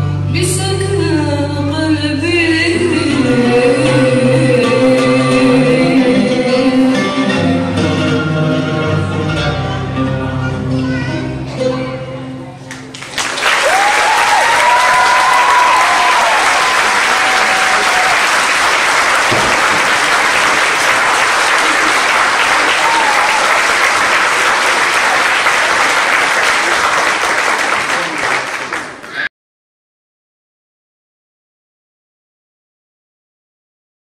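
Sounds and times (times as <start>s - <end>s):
audience applauding: 12.7s - 29.3s
person cheering: 13.6s - 18.4s, 21.6s - 23.8s.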